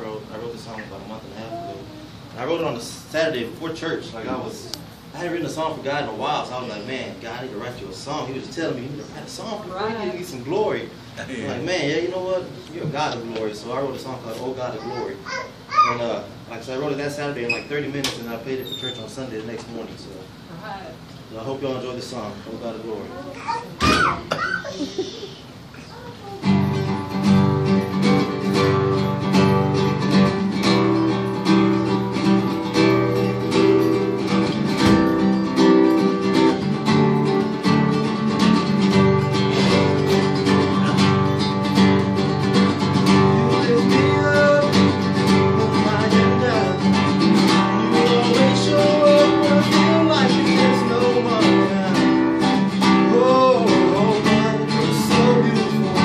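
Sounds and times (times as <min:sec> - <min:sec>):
classical guitar strumming chords: 0:26.4 - 0:56.0
man singing: 0:42.9 - 0:56.0.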